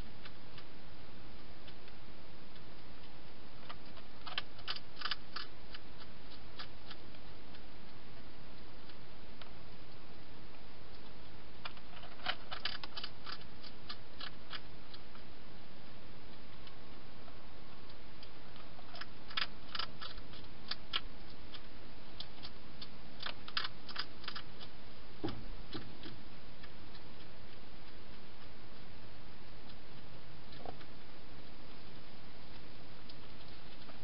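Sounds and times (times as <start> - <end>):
steady hiss: 0.0 - 34.0
hedgehog chewing clicks: 2.6 - 8.0, 11.0 - 15.3, 17.7 - 29.0.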